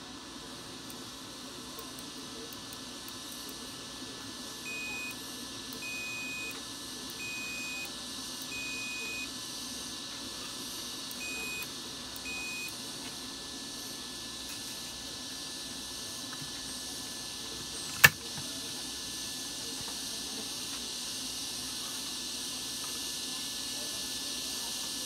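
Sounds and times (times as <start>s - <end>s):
multimeter continuity beeps: 4.6s - 9.3s, 11.1s - 12.8s.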